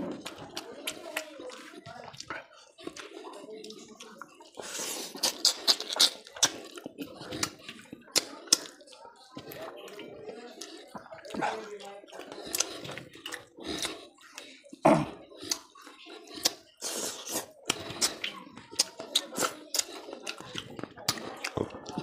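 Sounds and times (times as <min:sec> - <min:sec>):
wet chewing and lip smacks: 0:00.0 - 0:14.8, 0:15.4 - 0:22.0
fingers squishing rice: 0:02.9 - 0:08.9.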